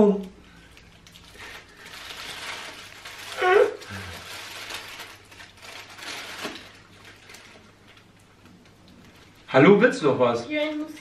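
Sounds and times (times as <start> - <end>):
paper wrappers rustling: 0.6 - 8.2.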